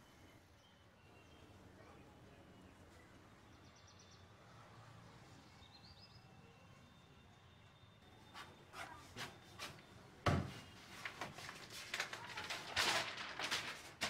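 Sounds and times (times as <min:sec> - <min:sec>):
pages rustling and turning: 0:10.4 - 0:14.0.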